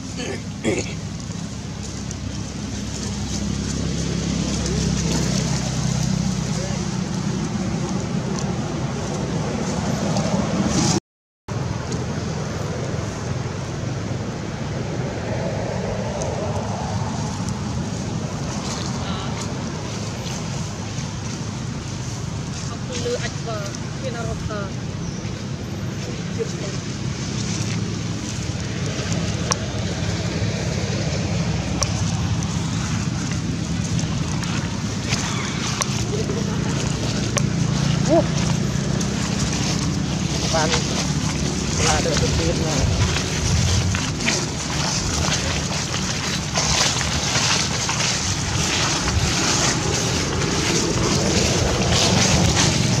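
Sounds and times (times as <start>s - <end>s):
wind buffeting microphone: 11.7s - 53.0s.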